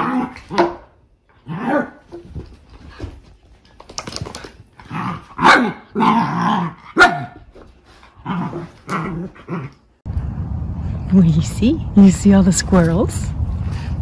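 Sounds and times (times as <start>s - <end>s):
dogs play growling: 0.0s - 0.6s, 1.3s - 7.0s, 7.6s - 10.0s
dogs barking: 5.4s - 6.2s, 6.9s - 7.4s.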